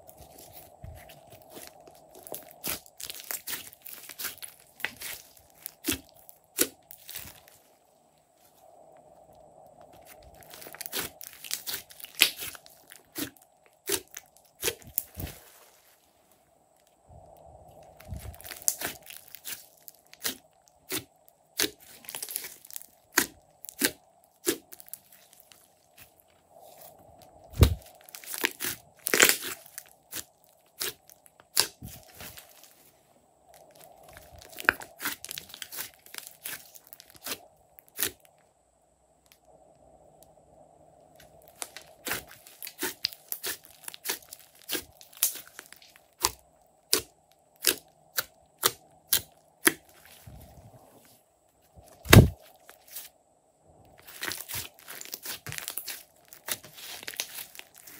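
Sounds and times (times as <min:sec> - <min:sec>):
hands squishing slime: 0:00.1 - 0:07.5, 0:10.0 - 0:15.4, 0:18.1 - 0:26.1, 0:27.5 - 0:32.6, 0:34.1 - 0:37.4, 0:41.5 - 0:50.2, 0:54.0 - 0:57.9.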